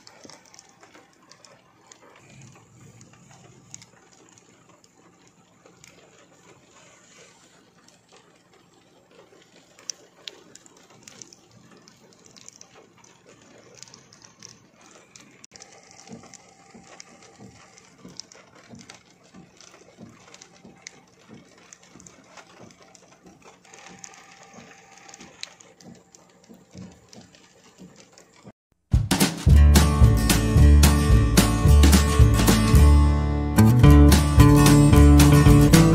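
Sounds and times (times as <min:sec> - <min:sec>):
raindrops tapping: 0:00.0 - 0:35.9.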